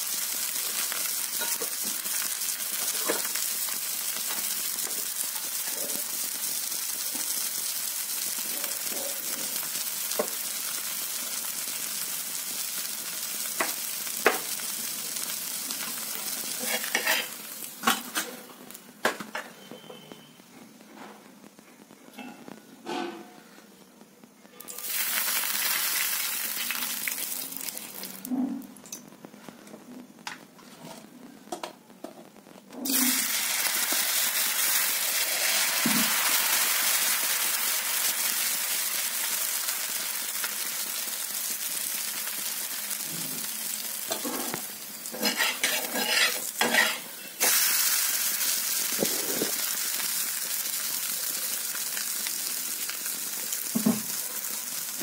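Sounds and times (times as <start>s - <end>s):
batter sizzling on a griddle: 0.0s - 19.2s, 24.6s - 28.9s, 32.0s - 55.0s
spoon strokes on a pan: 15.8s - 17.5s, 44.1s - 50.0s.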